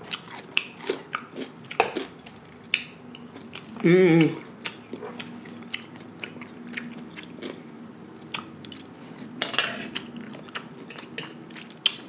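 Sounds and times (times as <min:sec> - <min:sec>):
chewing crunchy cucumber: 0:00.0 - 0:12.0
fork scraping foil tray: 0:09.2 - 0:10.0.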